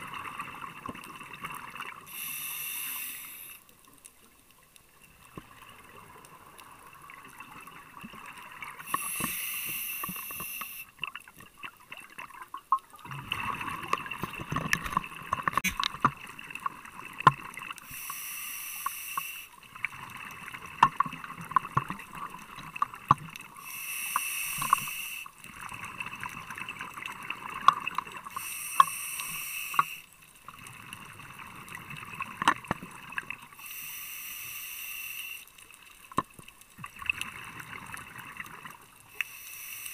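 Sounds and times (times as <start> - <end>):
exhaled bubbles gurgling: 0.0 - 2.3, 5.1 - 18.0, 19.6 - 23.7, 24.5 - 28.7, 30.4 - 33.6, 36.8 - 39.2
regulator inhale hiss: 2.0 - 3.7, 8.8 - 11.0, 17.8 - 19.6, 23.6 - 25.4, 28.2 - 30.2, 33.5 - 35.6, 39.1 - 39.9.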